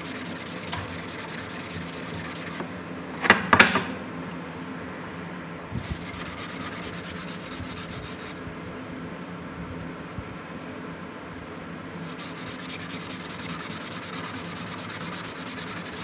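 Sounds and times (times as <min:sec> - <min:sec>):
hand scrubbing steel blade: 0:12.1 - 0:16.0.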